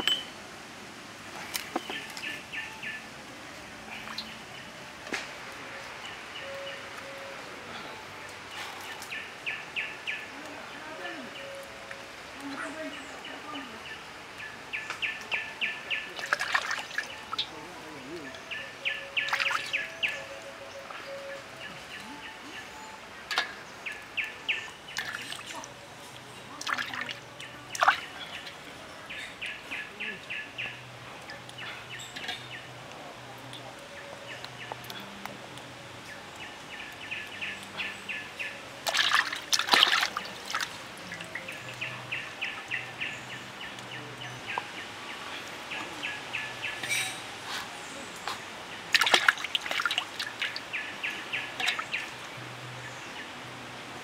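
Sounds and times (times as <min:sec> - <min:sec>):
water splashing in a metal wok: 0:16.1 - 0:17.4, 0:24.9 - 0:25.6, 0:26.6 - 0:28.6, 0:38.8 - 0:40.8, 0:48.9 - 0:50.7, 0:51.5 - 0:52.2.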